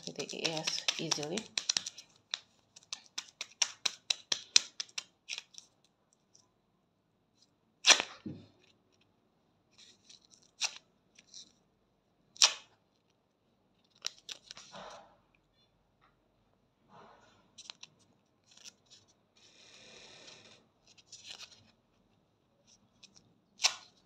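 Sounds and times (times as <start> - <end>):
wax strip rubbing on skin: 0.0 - 5.5
wax strip crackling: 0.0 - 5.6
wax strip ripping off skin: 7.8 - 8.2, 23.6 - 24.0.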